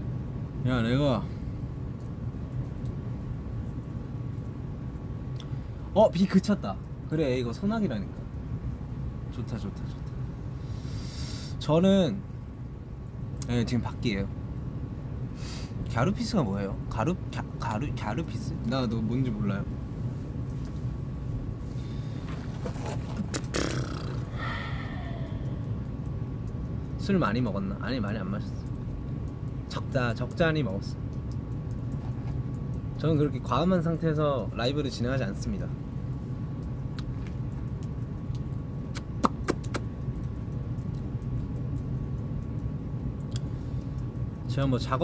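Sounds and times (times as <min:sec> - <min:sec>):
low outdoor background hum: 0:00.0 - 0:45.0.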